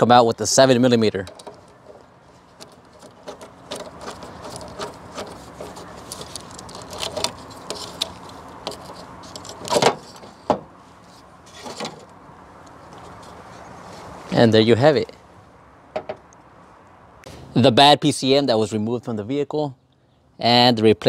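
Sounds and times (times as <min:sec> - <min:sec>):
plastic connectors knocking and scraping: 0:01.2 - 0:10.7.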